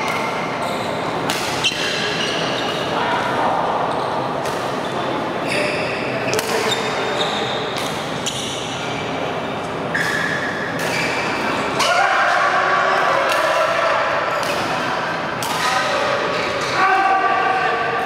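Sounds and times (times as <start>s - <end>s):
rackets hitting shuttlecock: 1.2s - 2.2s, 6.3s - 6.7s, 14.4s - 15.8s.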